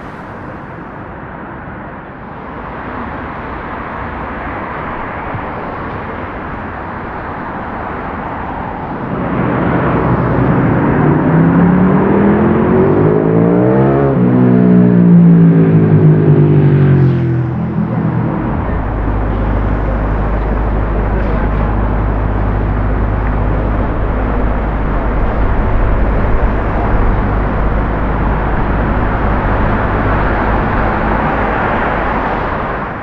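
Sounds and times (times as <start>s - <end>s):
vehicle passing close: 0.0s - 1.2s, 6.5s - 33.0s
low steady rumble: 0.0s - 1.3s, 3.3s - 33.0s
hiss of passing cars: 0.0s - 13.4s.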